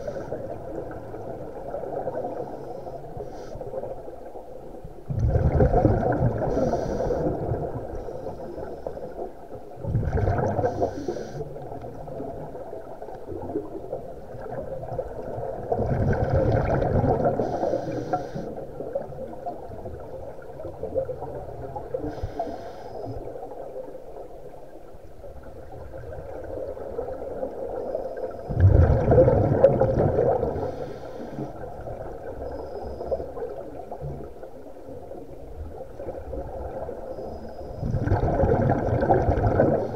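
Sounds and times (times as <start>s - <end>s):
exhaled bubbles gurgling: 0.0s - 39.9s
muffled underwater background: 16.4s - 18.8s.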